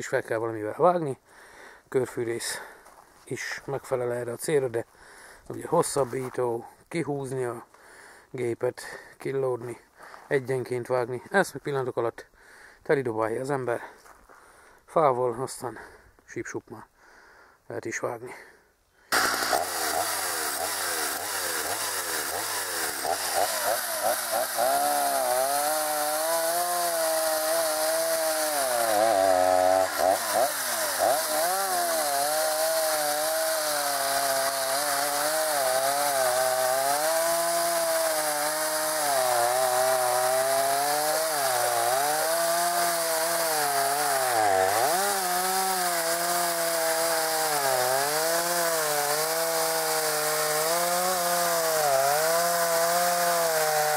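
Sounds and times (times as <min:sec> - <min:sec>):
chainsaw cutting branches: 0:19.1 - 0:53.9.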